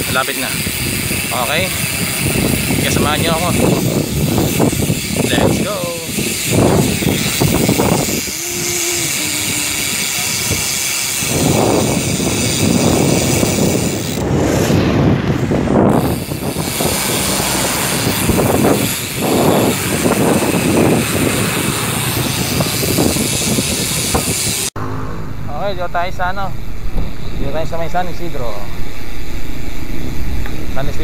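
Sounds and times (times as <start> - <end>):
wind buffeting microphone: 0.0 - 24.8, 25.4 - 31.0
road noise: 0.0 - 31.0.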